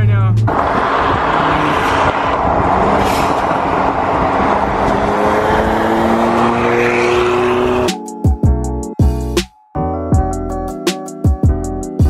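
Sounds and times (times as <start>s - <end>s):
car engines: 0.0s - 8.0s
road and wind noise: 0.0s - 8.0s
music with deep sliding bass: 0.0s - 12.0s
car accelerating: 0.4s - 8.0s.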